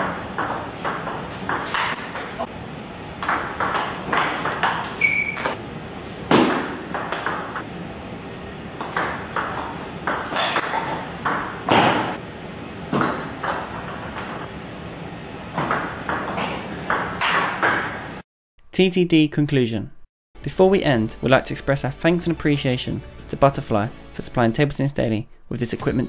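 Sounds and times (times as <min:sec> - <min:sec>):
high squeaks: 0:04.1 - 0:05.6, 0:13.0 - 0:13.5.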